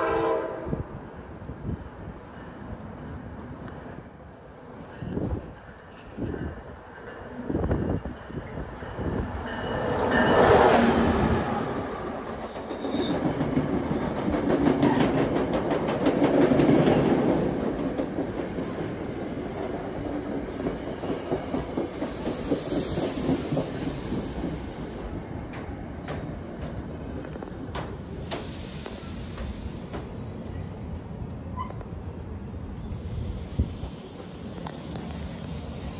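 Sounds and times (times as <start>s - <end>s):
diesel locomotive passing: 0.0s - 35.9s
train rumble: 0.0s - 35.9s
high-pitched wheel squeal: 23.8s - 27.5s.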